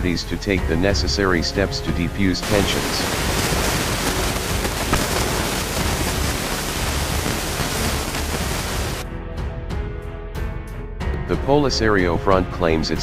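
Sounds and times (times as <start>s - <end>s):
music: 0.0s - 13.0s
steady rushing noise: 2.4s - 9.0s.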